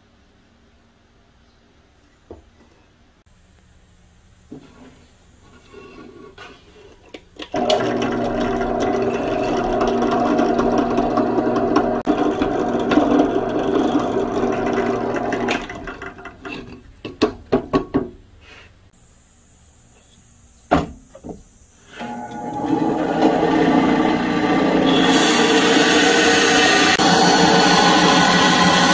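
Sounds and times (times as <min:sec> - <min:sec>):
electric drill boring through wood: 0:07.5 - 0:16.2, 0:22.0 - 0:28.9.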